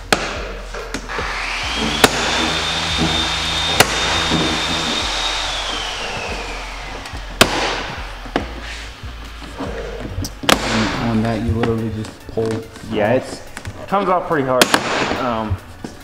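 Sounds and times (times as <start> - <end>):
power tool whine: 1.0 - 11.0.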